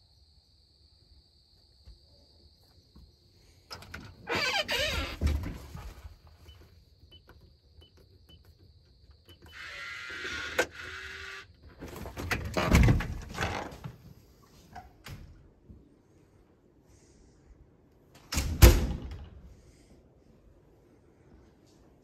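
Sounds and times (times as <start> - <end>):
door thump: 18.3 - 19.4.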